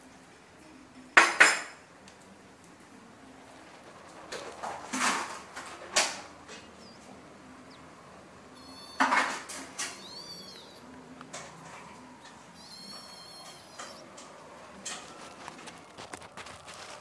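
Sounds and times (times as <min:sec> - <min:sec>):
cats scuffling on floor: 0:08.6 - 0:17.0.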